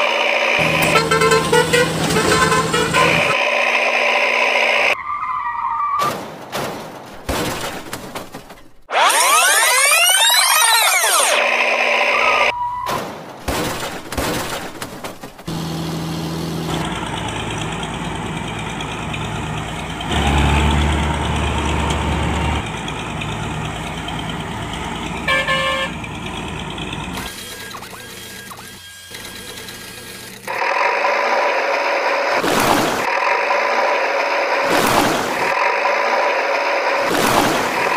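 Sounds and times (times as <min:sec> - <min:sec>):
truck engine droning: 0:00.0 - 0:06.0, 0:08.4 - 0:12.9, 0:14.7 - 0:37.9
horn honk: 0:00.6 - 0:03.4, 0:25.2 - 0:26.2.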